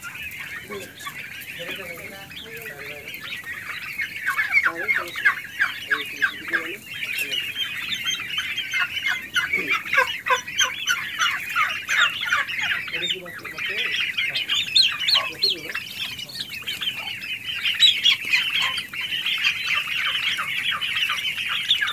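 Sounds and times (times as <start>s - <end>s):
young turkeys peeping: 0.0s - 21.9s.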